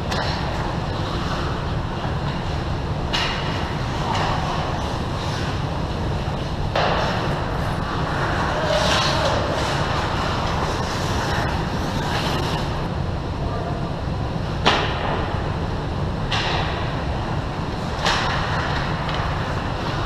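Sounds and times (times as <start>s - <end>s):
steady low rumble: 0.0s - 20.0s
puck or stick crack: 0.1s - 1.5s, 3.1s - 5.5s, 6.7s - 12.8s, 17.9s - 20.0s
skate blades scraping ice: 0.1s - 1.7s, 3.2s - 12.9s.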